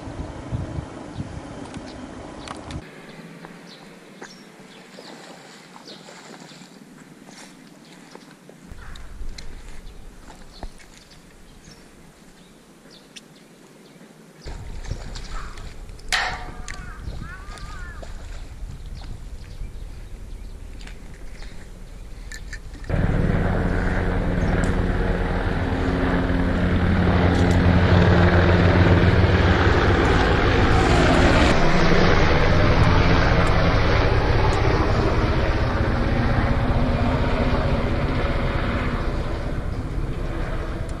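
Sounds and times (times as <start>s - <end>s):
loud engine drone: 22.9s - 41.0s.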